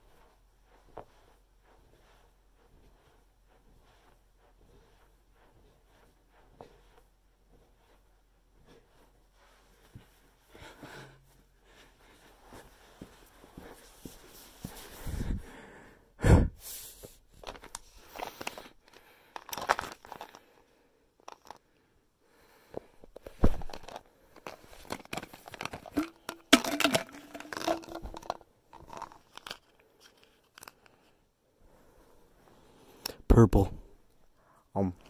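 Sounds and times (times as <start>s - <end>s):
packaging rustling and tearing: 19.4s - 20.4s, 23.6s - 30.8s.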